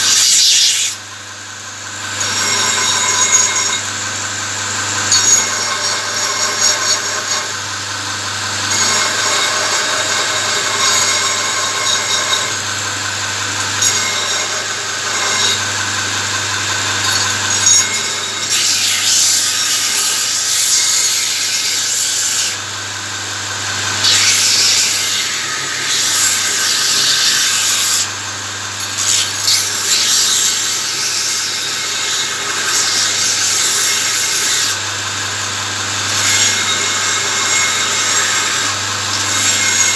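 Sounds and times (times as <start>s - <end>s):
steel grinding on belt: 0.0s - 1.1s, 1.9s - 23.1s, 23.7s - 39.9s
belt grinder motor hum: 0.0s - 39.9s.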